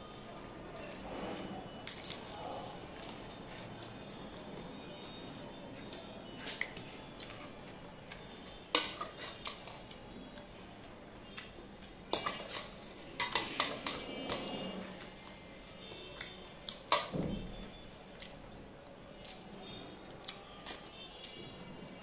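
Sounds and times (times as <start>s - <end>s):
metal spoon clinking on pots: 8.7s - 9.8s, 12.1s - 14.7s.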